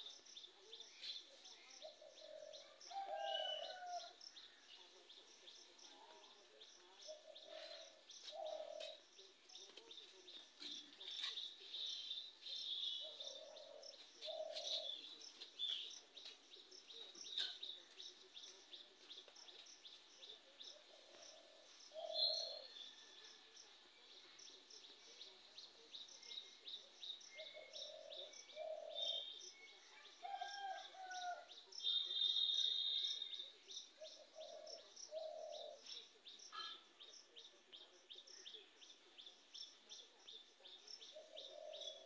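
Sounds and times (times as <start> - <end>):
small birds chirping: 3.5 - 23.0.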